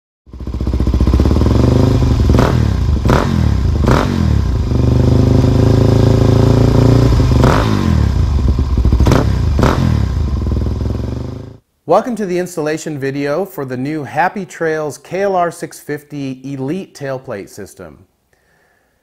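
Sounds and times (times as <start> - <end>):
motorcycle engine running: 0.3 - 11.6.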